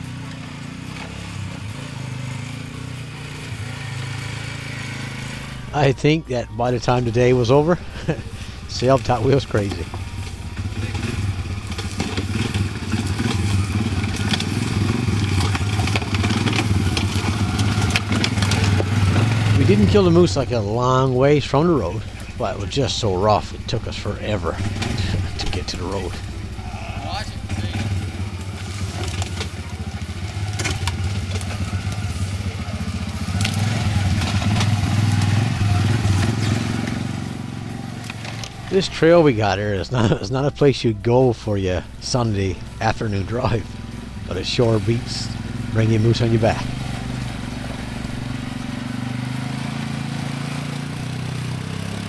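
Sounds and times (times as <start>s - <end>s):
atv engine running: 0.0s - 52.0s
branches snapping under tyres: 8.8s - 40.3s, 42.2s - 52.0s.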